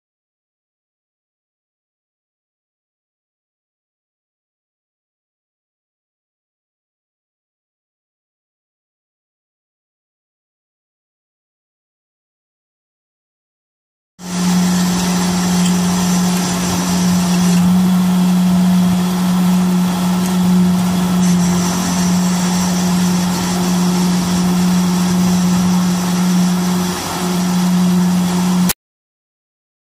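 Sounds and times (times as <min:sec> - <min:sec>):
kerb machine mechanical hum: 0:14.2 - 0:28.8.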